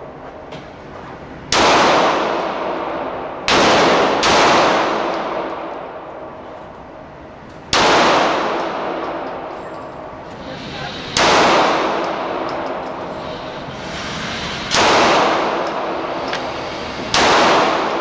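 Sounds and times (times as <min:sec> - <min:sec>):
handgun shots echoing indoors: 0:01.5 - 0:10.3, 0:11.1 - 0:13.1, 0:14.6 - 0:18.0.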